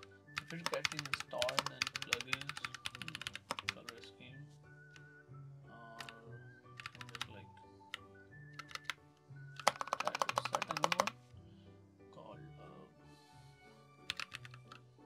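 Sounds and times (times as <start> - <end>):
computer keyboard typing: 0.0 - 4.0, 6.0 - 6.2, 6.8 - 9.0, 9.6 - 11.2, 14.1 - 14.8
soft background music: 0.0 - 15.0.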